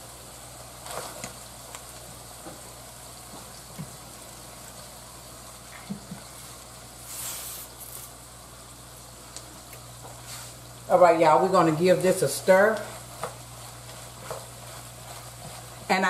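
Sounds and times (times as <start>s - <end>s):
meat sizzling in skillet: 0.0s - 16.0s
loud hiss: 7.0s - 8.2s.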